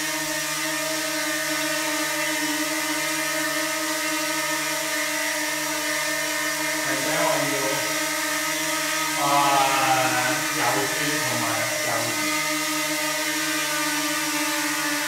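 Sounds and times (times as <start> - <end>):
drone propellers whining: 6.6 - 12.6.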